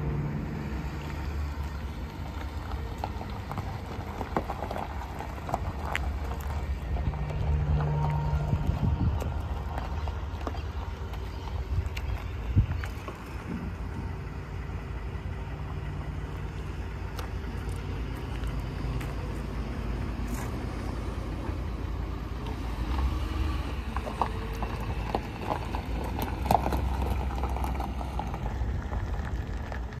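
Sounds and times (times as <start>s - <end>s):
pickup engine idling: 0.0s - 30.0s
footsteps on gravel: 1.0s - 14.2s, 16.2s - 21.8s.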